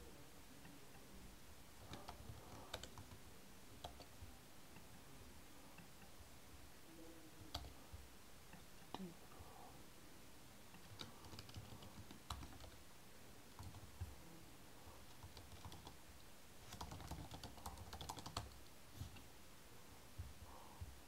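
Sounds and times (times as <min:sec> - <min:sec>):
computer keyboard typing: 0:01.8 - 0:03.2, 0:03.8 - 0:04.2, 0:07.5 - 0:07.8, 0:10.8 - 0:12.8, 0:13.5 - 0:14.1, 0:15.0 - 0:16.0, 0:16.6 - 0:18.7.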